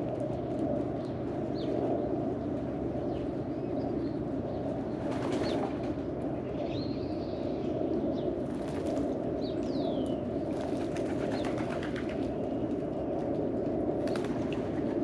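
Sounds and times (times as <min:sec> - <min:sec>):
wings flapping: 0:05.0 - 0:06.0, 0:08.4 - 0:09.2, 0:10.5 - 0:15.0.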